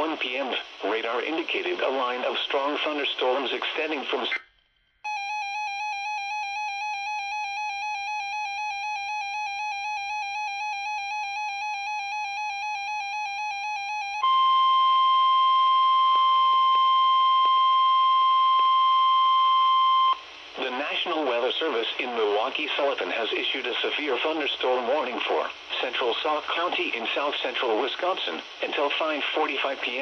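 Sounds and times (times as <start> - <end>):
radio hiss: 0.0 - 4.4, 20.2 - 30.0
steady warning alarm tone: 5.1 - 20.2
warbling electronic alert siren: 5.1 - 20.2.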